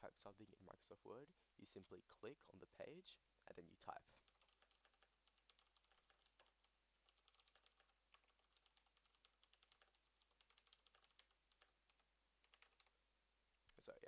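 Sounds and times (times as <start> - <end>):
keystrokes on a computer keyboard: 4.2 - 13.0.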